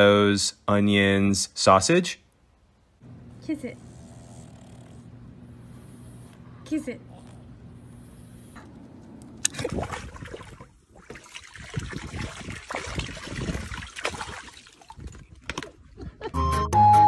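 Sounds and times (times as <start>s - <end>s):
dog splashing in water: 9.4s - 15.7s
music: 16.3s - 17.0s.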